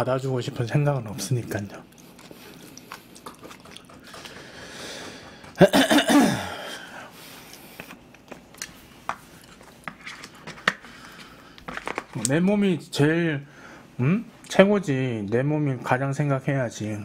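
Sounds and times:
man clearing throat: 5.6 - 6.9.

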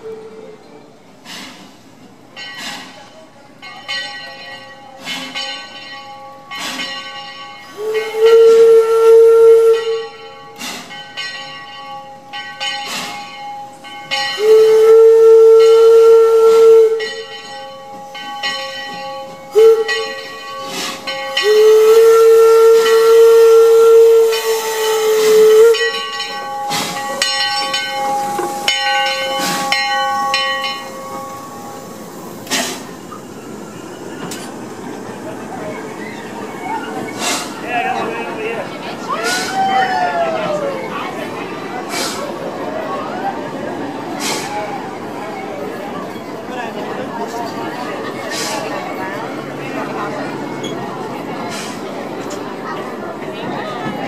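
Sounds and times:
steam locomotive whistle blasts: 0.0 - 0.7, 7.7 - 10.7, 14.2 - 17.3, 19.5 - 32.9
locomotive bell ringing: 2.0 - 54.0.

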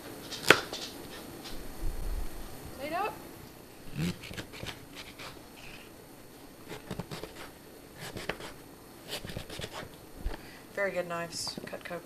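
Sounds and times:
knife scrapes: 3.9 - 5.9, 6.7 - 9.9.

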